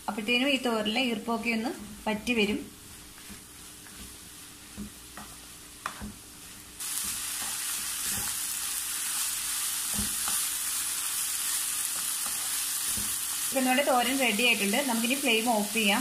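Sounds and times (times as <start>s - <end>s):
food sizzling: 0.0s - 16.0s
wooden spatula scraping a pan: 1.6s - 8.4s, 11.9s - 13.2s.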